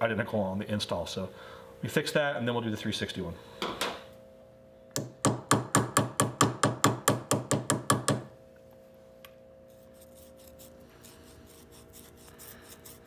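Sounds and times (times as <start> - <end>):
hammer tapping metal: 5.0 - 8.3
sanding scratchy rubbing: 9.7 - 13.0.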